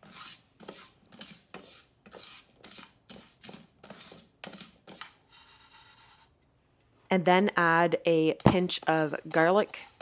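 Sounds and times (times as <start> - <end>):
plastic spatula scraping frying pan: 0.0 - 6.3, 8.4 - 10.0.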